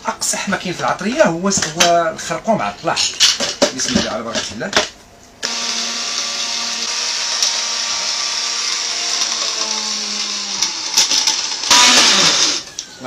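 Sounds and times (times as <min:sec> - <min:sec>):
blender motor whirring: 0:05.4 - 0:12.8.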